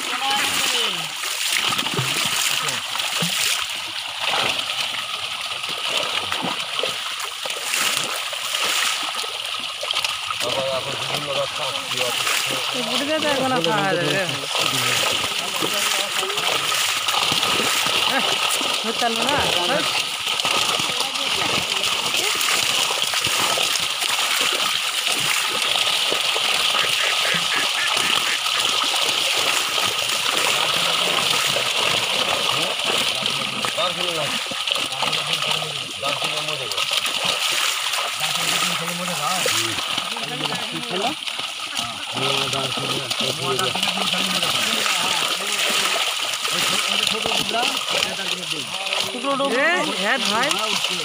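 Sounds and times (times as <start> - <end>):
hands moving through water: 0.0 - 36.0
fish splashing in shallow water: 0.0 - 51.0.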